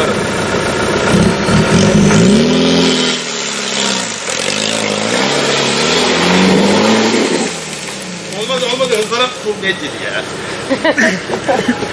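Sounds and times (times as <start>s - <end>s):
engine revving hard: 0.9s - 9.4s
wheels spinning throwing dirt: 1.1s - 9.8s.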